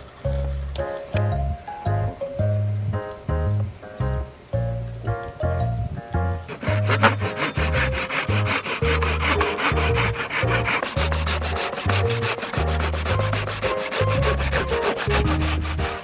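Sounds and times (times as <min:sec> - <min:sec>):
background music with steady beat: 0:00.0 - 0:16.0
pull saw rasping through wood: 0:06.5 - 0:16.0.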